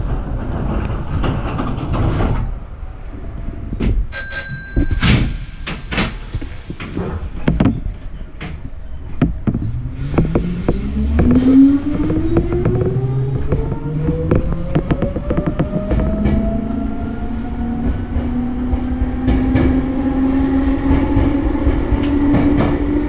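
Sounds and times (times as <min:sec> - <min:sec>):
knocks and clunks: 0:00.0 - 0:02.7, 0:03.7 - 0:17.0
bell-like tone: 0:04.1 - 0:05.7
train traction motors whining: 0:05.5 - 0:22.8.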